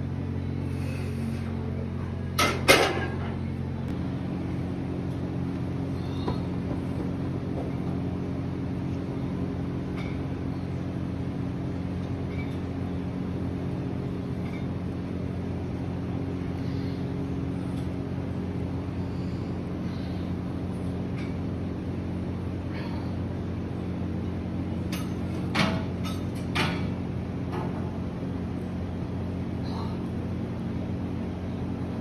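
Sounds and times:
low mechanical hum: 0.0s - 32.0s.

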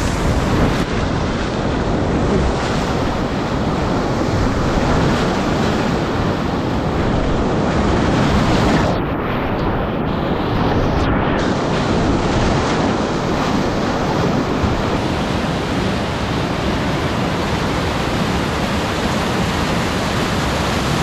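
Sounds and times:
whitewater rapids rushing: 11.4s - 21.0s.

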